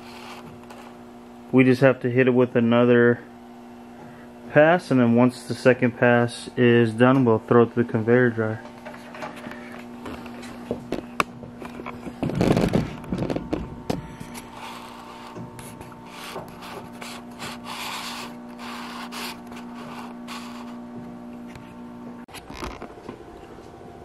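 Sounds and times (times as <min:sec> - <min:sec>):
scraping rub: 0:00.0 - 0:01.0, 0:14.3 - 0:21.8
conveyor dryer humming: 0:00.0 - 0:22.2, 0:22.9 - 0:24.0.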